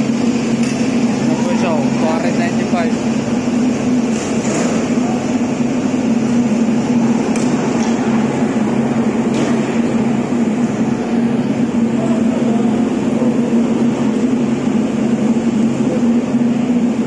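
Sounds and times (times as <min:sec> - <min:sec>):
machinery humming: 0:00.0 - 0:17.0.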